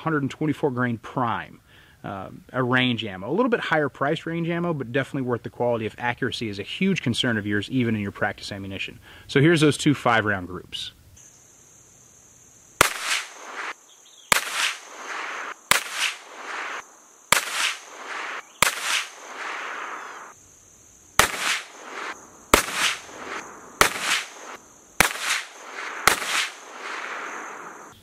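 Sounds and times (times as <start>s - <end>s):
pistol shots echoing: 12.8s - 13.7s, 14.3s - 20.0s, 21.2s - 27.3s.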